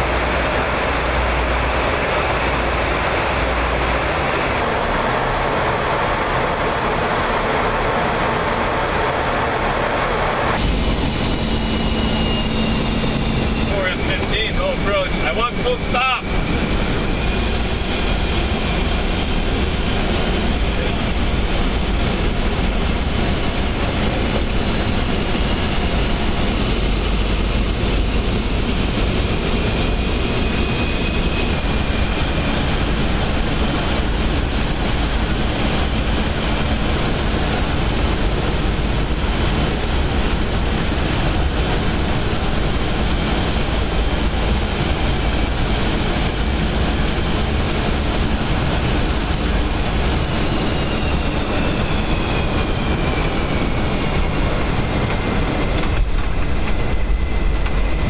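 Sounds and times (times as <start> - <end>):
deep rumble of engines and air: 0.0 - 58.0
faint high whines: 10.0 - 18.2.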